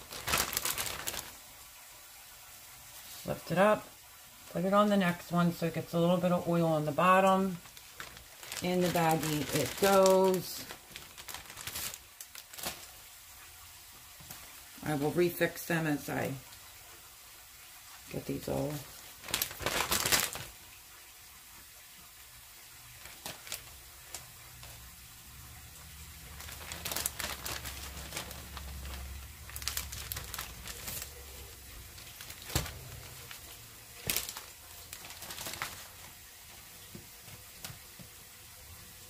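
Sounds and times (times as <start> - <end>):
plastic bags crinkling: 0.0 - 1.7, 6.0 - 13.5, 18.2 - 20.7, 22.9 - 38.0.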